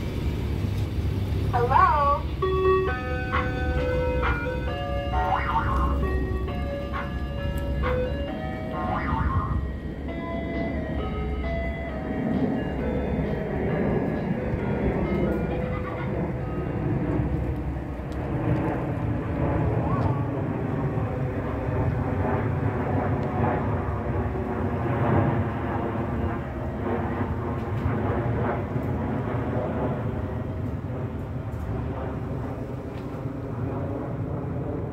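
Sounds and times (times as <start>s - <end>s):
truck engine low rumble: 0.0s - 34.9s.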